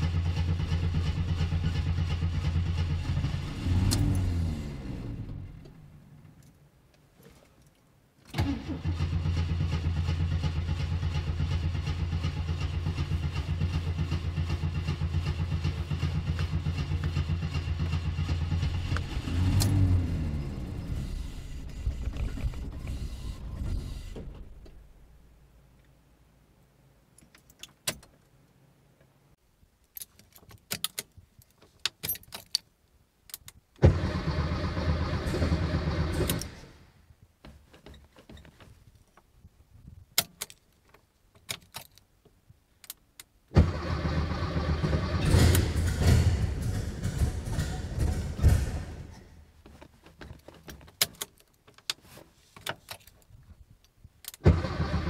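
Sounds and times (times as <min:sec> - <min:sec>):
engine running: 0:00.0 - 0:05.7, 0:09.2 - 0:24.4, 0:33.8 - 0:36.8, 0:43.6 - 0:49.4
race car engine firing: 0:43.6 - 0:49.2.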